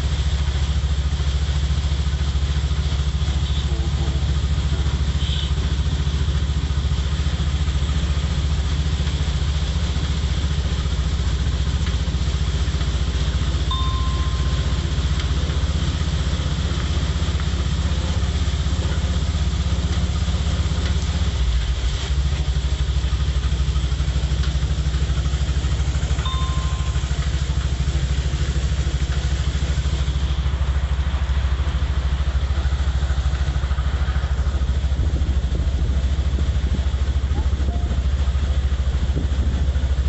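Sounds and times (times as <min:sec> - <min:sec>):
heavy rain hissing: 0:00.0 - 0:40.0
motorcycle engine running: 0:00.0 - 0:40.0.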